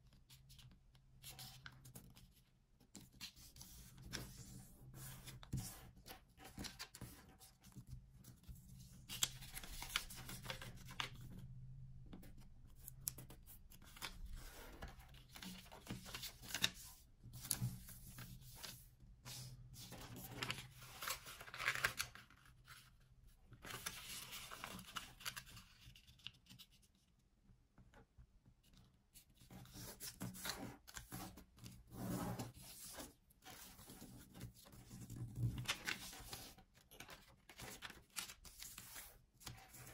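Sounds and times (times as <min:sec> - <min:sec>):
paper rustling and crinkling: 0:03.0 - 0:11.3, 0:13.1 - 0:26.8, 0:29.7 - 0:39.9
paper crease crackles: 0:13.8 - 0:23.0, 0:23.6 - 0:26.6.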